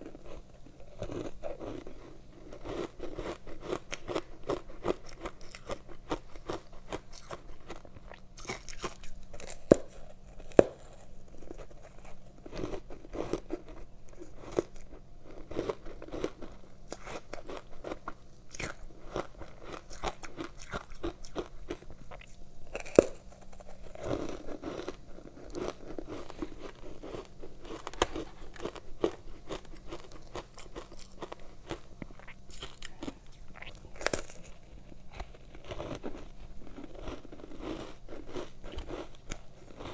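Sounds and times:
crunching ice: 34.0s - 39.9s.

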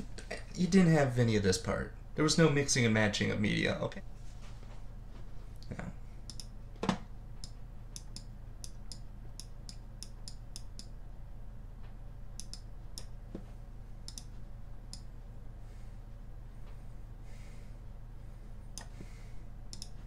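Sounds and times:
steady low hum: 0.0s - 20.0s
mouse button clicking: 12.4s - 13.1s.

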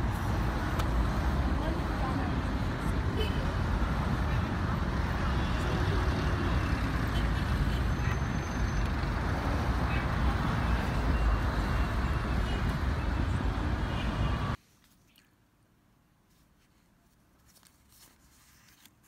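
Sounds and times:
road traffic rumble: 0.0s - 14.6s.

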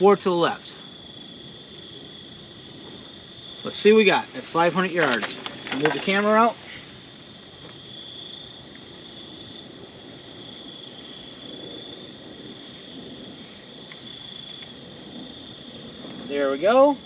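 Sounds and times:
faint outdoor background noise: 0.0s - 17.0s
insects trilling: 0.0s - 17.0s.

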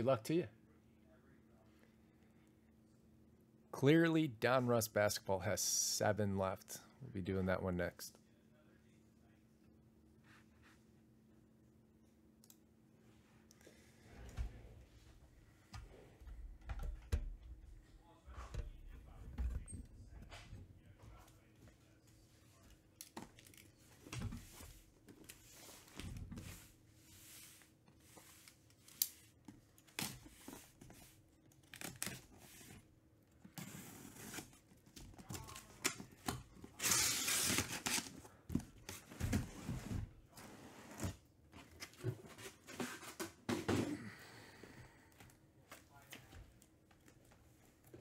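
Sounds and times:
tape and cardboard tearing: 36.8s - 38.2s.

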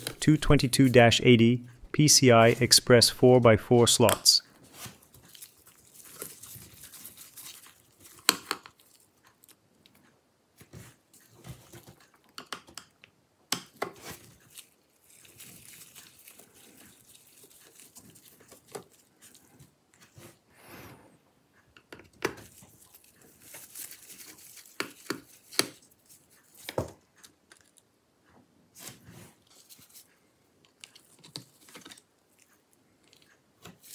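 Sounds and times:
gloved hands rustling: 22.4s - 26.8s.

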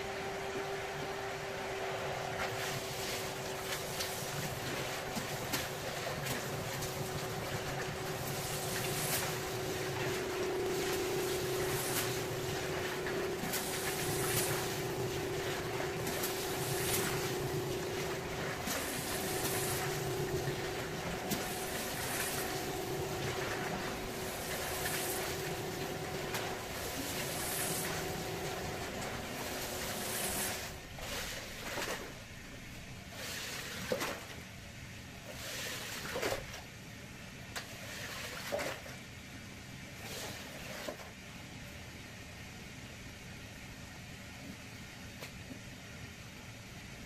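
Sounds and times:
cleaning machine motor whining: 0.0s - 31.5s.

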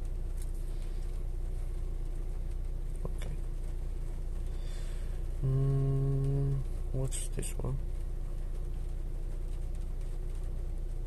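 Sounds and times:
car engine idling inside cabin: 0.0s - 11.0s
louder flat-pitched hum: 0.0s - 11.0s.

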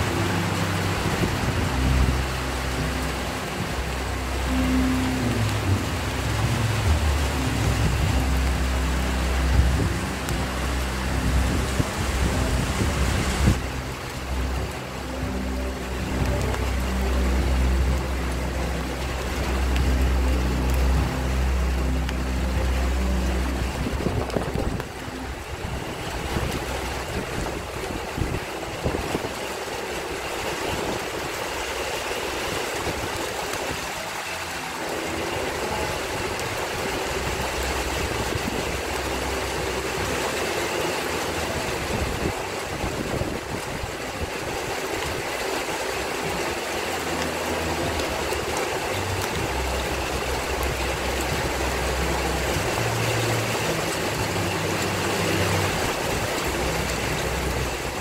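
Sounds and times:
low thunder rumble: 0.0s - 34.1s
rain and wind hissing: 0.0s - 58.0s.

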